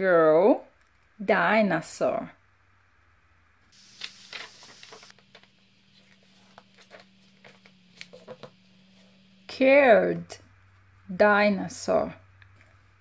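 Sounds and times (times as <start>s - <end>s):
paper taps and crinkles: 3.8s - 8.6s
book pages rustling: 3.8s - 9.2s.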